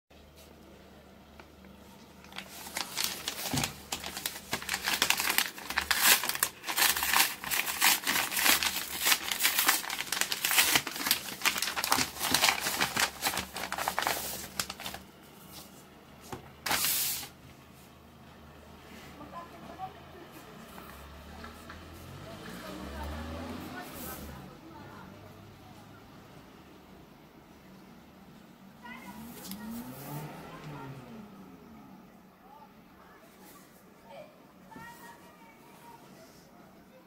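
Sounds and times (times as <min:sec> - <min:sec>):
paper envelope crinkling and tearing: 0:02.1 - 0:15.1, 0:16.6 - 0:17.3.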